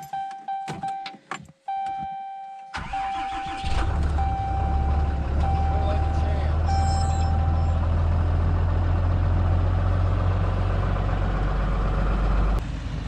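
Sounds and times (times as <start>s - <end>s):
truck engine idling: 2.8s - 13.0s.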